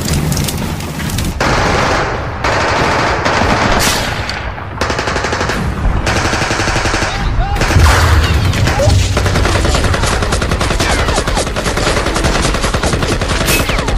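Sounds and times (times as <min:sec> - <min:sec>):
machine-gun fire bursts: 0:04.8 - 0:08.1, 0:08.9 - 0:13.9.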